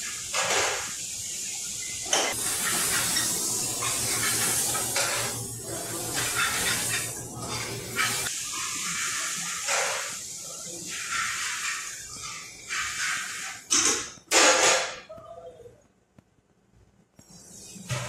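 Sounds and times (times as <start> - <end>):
steady hiss: 0.0 - 13.8.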